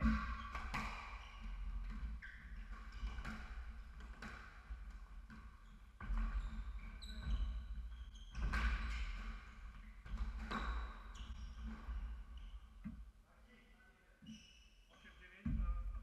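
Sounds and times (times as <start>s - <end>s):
squash ball hitting rackets and walls: 0.0s - 11.9s
shoes squeaking on wooden floor: 0.0s - 13.0s, 14.2s - 15.8s.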